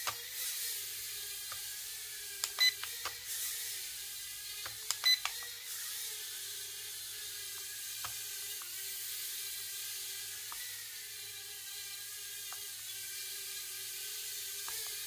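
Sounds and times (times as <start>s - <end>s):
toy drone propellers whining: 0.0s - 15.0s
sharp clicks: 2.4s - 3.2s.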